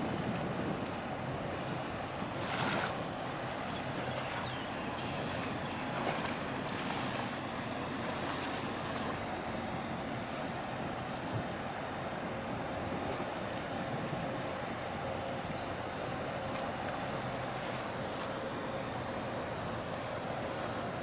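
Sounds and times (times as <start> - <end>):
wind on microphone: 0.0 - 7.4.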